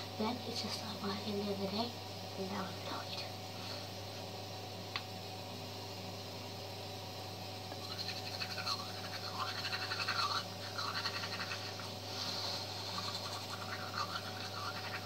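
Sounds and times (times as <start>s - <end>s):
bathroom fan humming: 0.0s - 15.0s
toothbrush scrubbing teeth: 7.7s - 15.0s.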